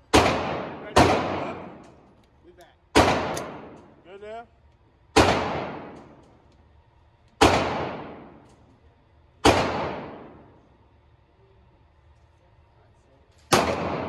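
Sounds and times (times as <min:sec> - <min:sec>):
pistol shots with echo: 0:00.0 - 0:01.9, 0:02.9 - 0:03.9, 0:05.1 - 0:06.2, 0:07.4 - 0:08.4, 0:09.4 - 0:10.6, 0:13.5 - 0:14.0.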